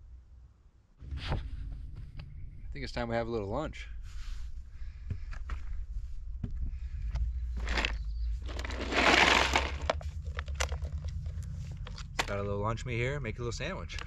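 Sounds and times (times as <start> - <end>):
low steady rumble: 0.0 - 14.0
plastic bag crinkling: 7.6 - 12.2
packages clicking and knocking: 7.6 - 12.4.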